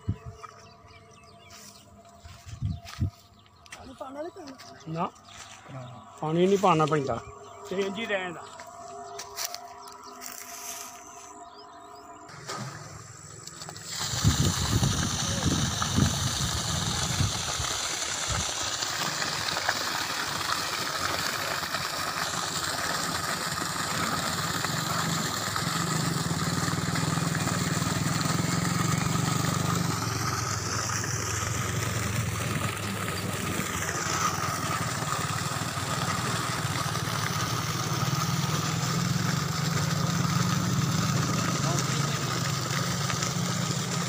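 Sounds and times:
low motor hum: 0.0 - 44.0
water pouring and splashing: 12.3 - 44.0.

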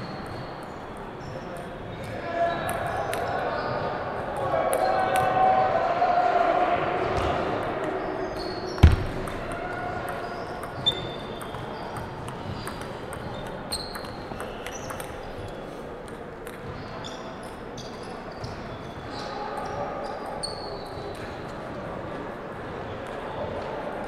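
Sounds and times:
loud thump: 8.8 - 9.4.

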